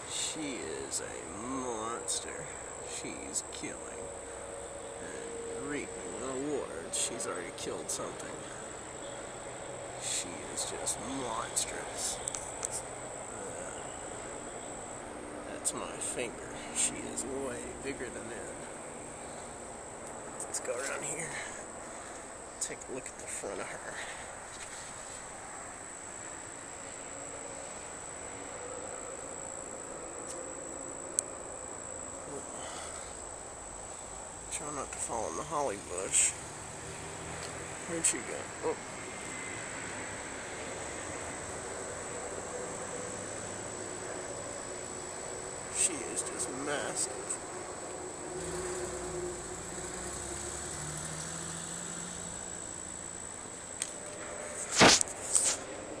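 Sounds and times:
insects trilling: 0:00.0 - 0:56.0
low mechanical hum: 0:00.0 - 0:56.0
sharp click: 0:54.8 - 0:55.6.

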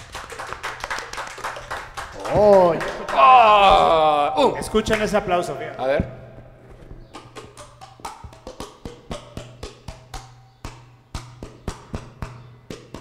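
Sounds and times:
hand claps: 0:00.0 - 0:04.1, 0:04.7 - 0:05.3, 0:07.1 - 0:13.0.

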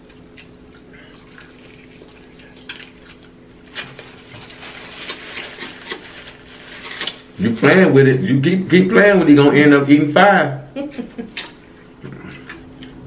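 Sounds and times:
people chewing and smacking: 0:00.0 - 0:06.2, 0:11.3 - 0:13.0
faint steady hum: 0:00.0 - 0:13.0.

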